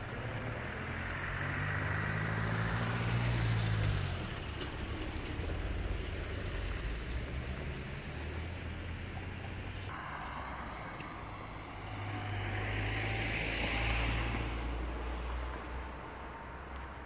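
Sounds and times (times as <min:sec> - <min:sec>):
tram rolling on track: 0:03.4 - 0:17.0
low motor hum: 0:09.5 - 0:17.0.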